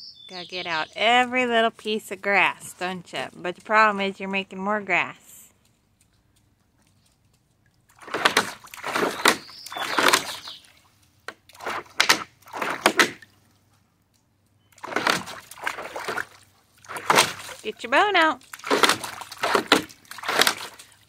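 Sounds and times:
dog splashing in water: 7.8s - 13.4s, 14.7s - 21.0s.

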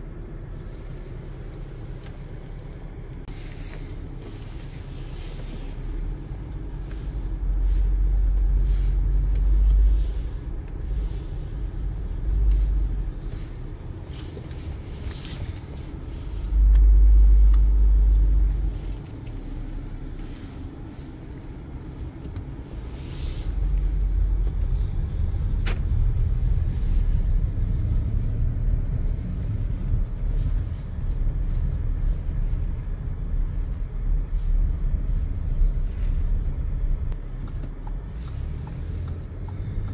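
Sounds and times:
car engine and road noise: 0.0s - 39.9s.

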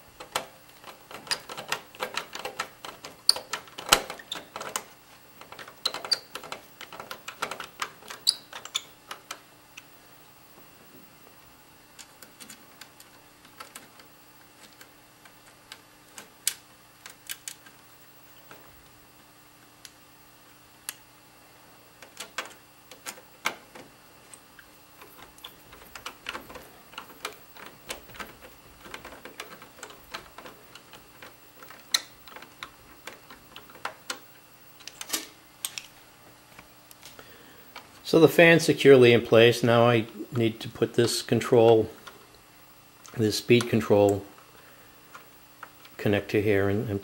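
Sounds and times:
screwdriver clicking and scraping on metal: 0.2s - 9.4s, 12.0s - 17.8s, 22.0s - 35.8s.

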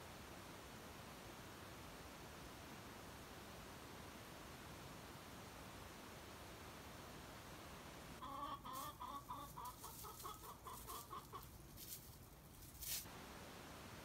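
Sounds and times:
hen clucking: 8.2s - 11.7s
rustling: 8.7s - 13.2s.

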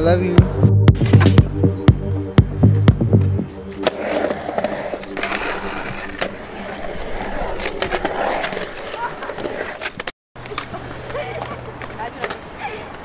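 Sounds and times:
skateboard wheels rumbling on concrete: 3.0s - 13.0s.

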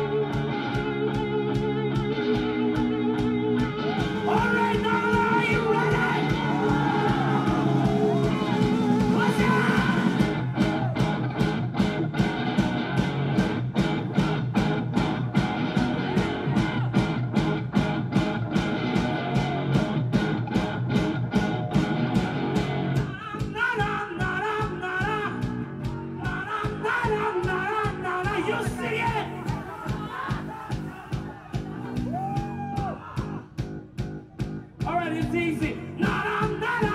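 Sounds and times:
live rock band playing: 0.0s - 36.9s
person singing: 3.8s - 11.0s, 23.0s - 32.2s, 34.8s - 36.9s.

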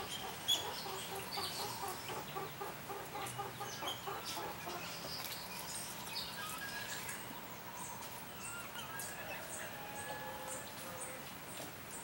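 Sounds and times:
hen clucking: 0.0s - 4.9s
songbirds chirping and whistling: 0.0s - 12.0s.

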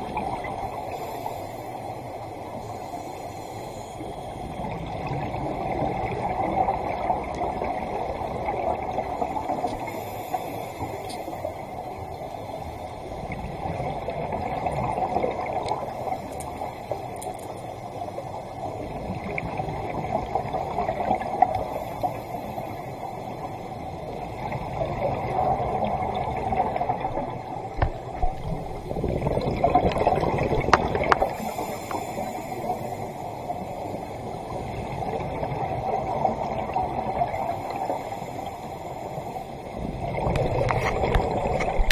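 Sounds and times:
bubbles gurgling underwater: 0.0s - 1.0s, 4.6s - 10.0s, 13.1s - 16.2s, 18.4s - 21.8s, 24.0s - 38.0s, 39.7s - 41.9s
diver regulator breathing: 0.7s - 4.9s, 9.2s - 13.2s, 30.7s - 34.6s.

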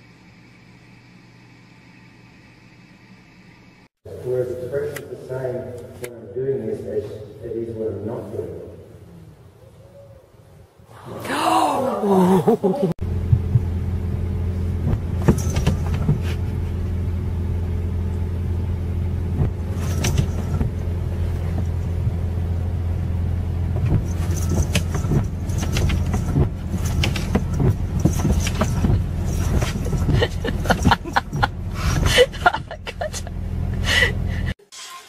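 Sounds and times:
car cabin drone: 12.9s - 34.6s.

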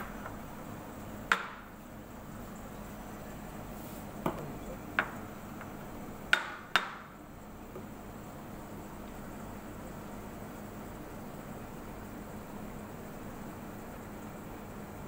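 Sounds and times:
background hum: 0.0s - 6.4s
sharp knocks of cup and pitcher: 4.2s - 5.3s.

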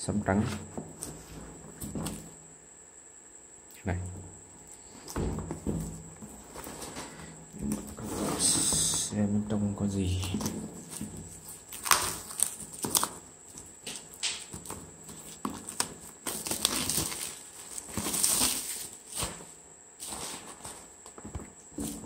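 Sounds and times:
plastic wrapping crinkling: 10.2s - 22.0s.

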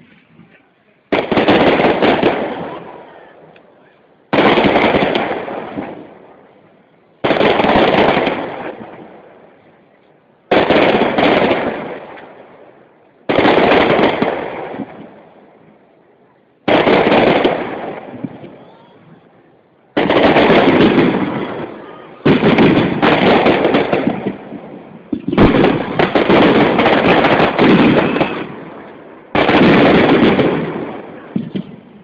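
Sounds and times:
firework shells bursting: 20.0s - 31.8s.

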